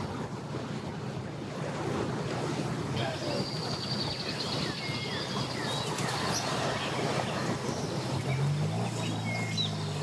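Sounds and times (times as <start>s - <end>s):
personal watercraft engine running: 0.0s - 10.0s
birds chirping: 3.0s - 10.0s.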